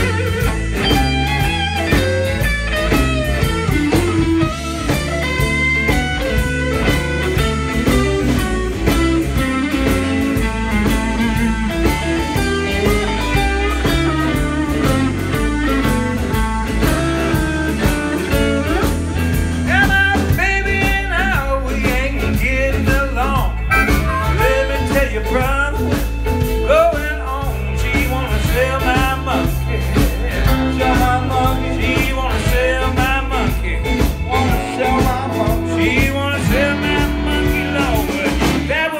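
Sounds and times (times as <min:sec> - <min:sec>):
harmonica: 0:00.0 - 0:21.5, 0:23.2 - 0:26.1
blues band playing: 0:00.0 - 0:38.9.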